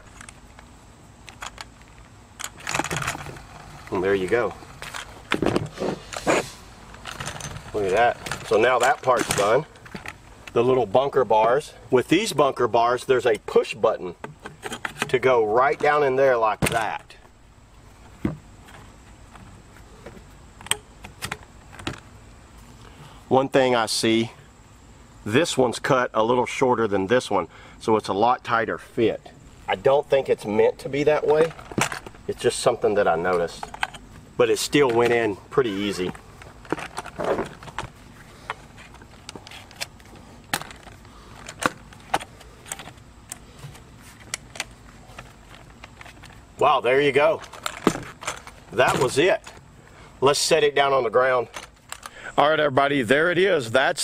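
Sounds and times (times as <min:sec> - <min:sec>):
metal frame parts clicking and clanking: 0:01.3 - 0:10.7, 0:33.3 - 0:37.9, 0:44.2 - 0:49.6.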